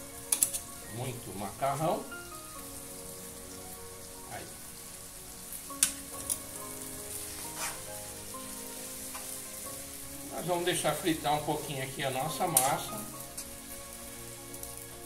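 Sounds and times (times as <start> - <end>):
faint background music: 0.0 - 15.0
pasta sizzling in a pan: 0.0 - 15.0
metal tongs clicking on pan: 0.3 - 0.7, 5.8 - 6.5, 12.5 - 12.8.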